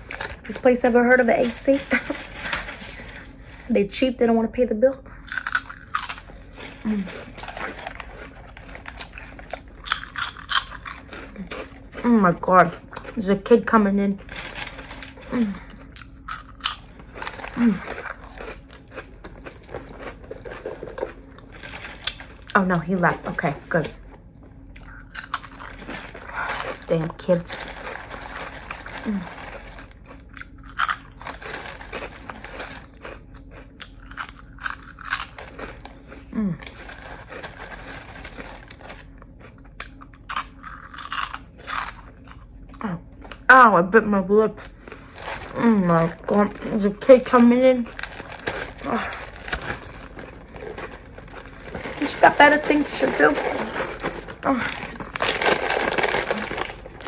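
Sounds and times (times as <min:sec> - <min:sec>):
chewing: 0:05.1 - 0:12.1, 0:14.2 - 0:22.4, 0:27.6 - 0:43.4.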